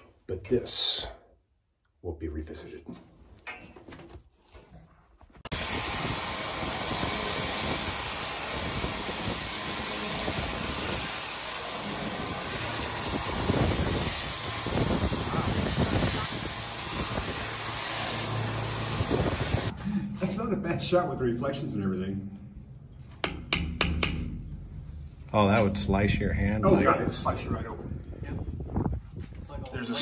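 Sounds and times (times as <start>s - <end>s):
pressure washer spraying steel: 5.5s - 19.8s.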